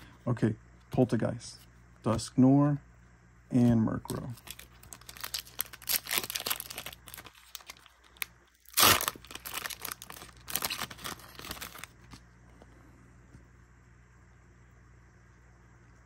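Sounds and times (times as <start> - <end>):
foil wrapper crinkling: 4.1 - 12.2
foil wrapper tearing: 4.1 - 12.2.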